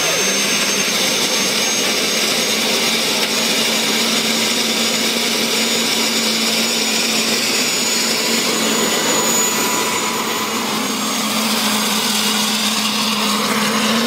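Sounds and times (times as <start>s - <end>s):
turbine engine whine: 0.0s - 14.0s
loud rushing noise: 7.0s - 14.0s.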